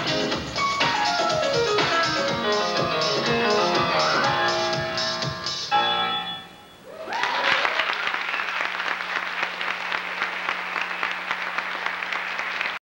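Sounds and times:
audience whooping: 0:06.8 - 0:12.8
audience applauding: 0:06.9 - 0:12.8.

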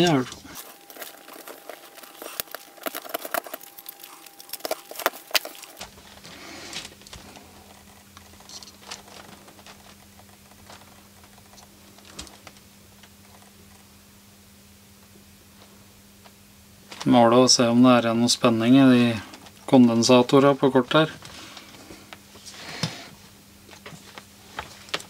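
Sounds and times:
faint handling ticks: 0:00.0 - 0:13.8
low steady hum: 0:00.0 - 0:25.0.

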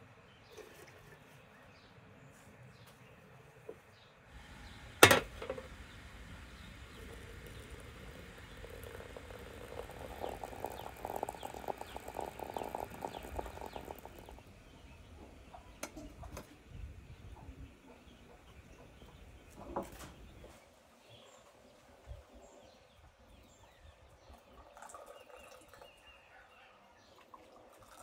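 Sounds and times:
water pouring into glass teapot: 0:05.6 - 0:15.0, 0:24.3 - 0:26.0, 0:27.2 - 0:28.0
faint bird chirps: 0:05.9 - 0:16.2
glass clinking: 0:08.6 - 0:14.2.

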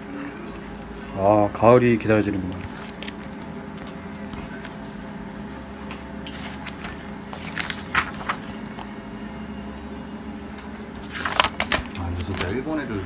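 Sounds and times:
steady low hum: 0:00.0 - 0:13.0
magazine pages flipping: 0:02.3 - 0:09.0, 0:10.9 - 0:12.7.

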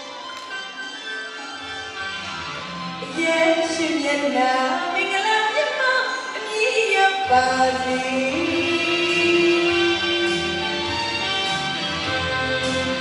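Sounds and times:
woman singing into a microphone: 0:03.0 - 0:10.4
live band accompaniment: 0:07.2 - 0:13.0.

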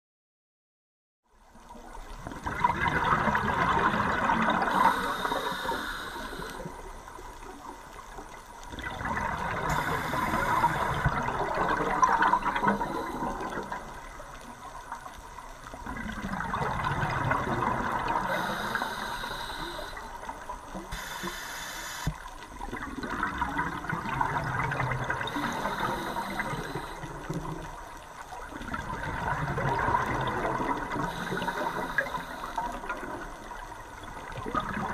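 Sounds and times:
regulator hissing: 0:20.9 - 0:22.1.

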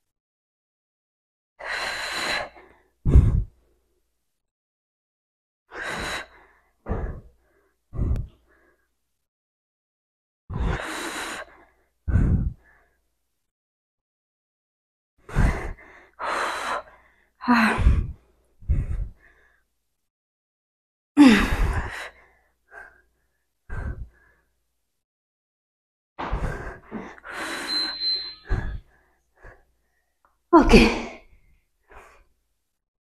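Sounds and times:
woman breathing hard: 0:01.6 - 0:03.6, 0:05.7 - 0:08.9, 0:10.5 - 0:13.0, 0:15.3 - 0:19.7, 0:21.2 - 0:24.6, 0:26.2 - 0:30.0
woman grunting: 0:30.6 - 0:31.2.

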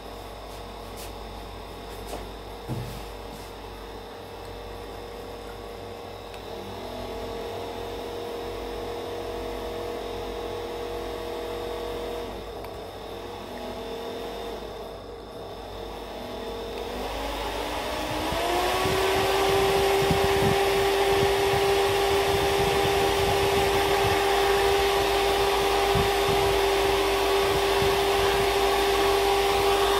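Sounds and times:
electric fan motor whining: 0:00.0 - 0:29.9
rush of air from fan blades: 0:16.4 - 0:29.9.

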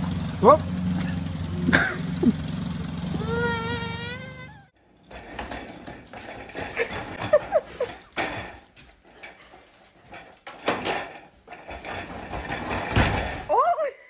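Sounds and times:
dog whimpering: 0:03.1 - 0:04.7.

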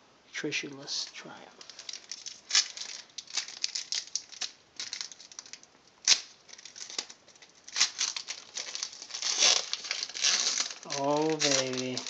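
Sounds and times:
foil wrapper crinkling: 0:01.6 - 0:12.0.

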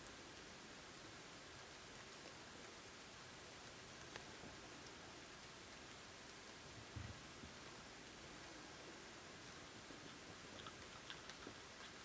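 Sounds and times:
steady low hiss: 0:00.0 - 0:12.0
piglets chewing clicks: 0:09.5 - 0:12.0.

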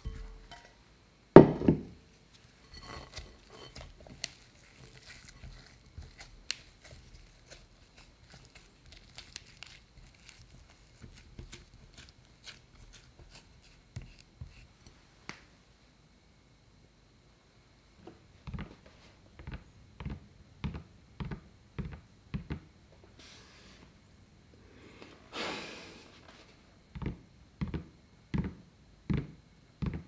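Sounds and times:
spatula squelching sticky dough: 0:02.3 - 0:14.9.

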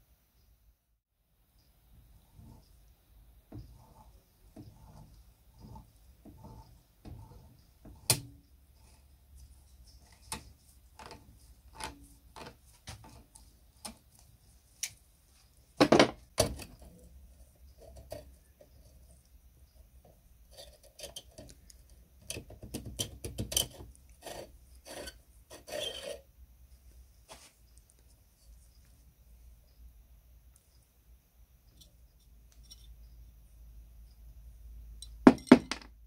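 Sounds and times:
metal rod knocking on wooden bench: 0:35.3 - 0:35.9.

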